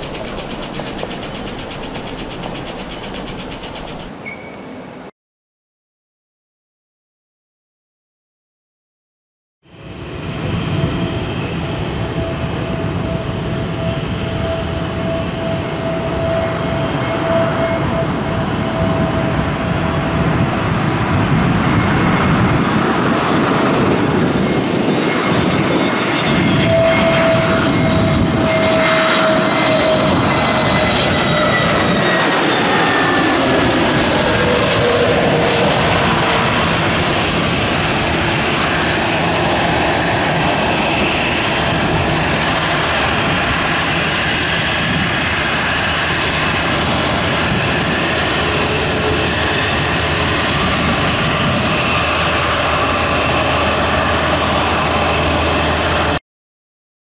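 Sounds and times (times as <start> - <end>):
whining tones gliding downward: 0.0 - 4.1
jet engines roaring: 0.0 - 4.3, 9.7 - 56.2.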